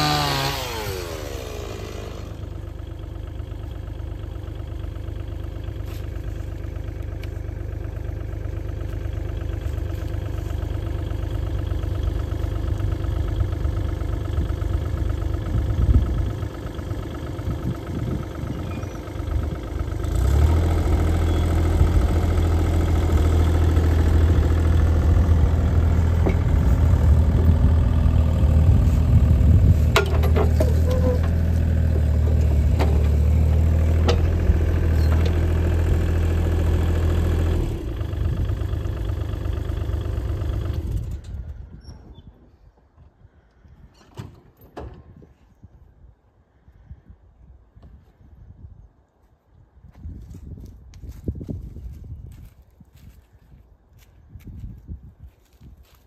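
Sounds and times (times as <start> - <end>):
diesel engine idling: 0.0 - 41.8
diesel engine throttled up: 0.0 - 41.8.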